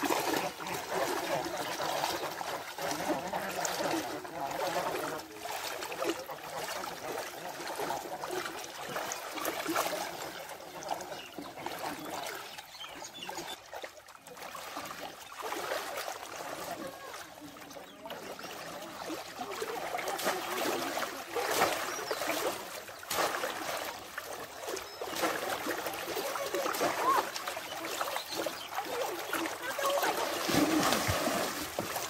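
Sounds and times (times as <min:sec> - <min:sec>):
wading through water: 0:00.0 - 0:32.0.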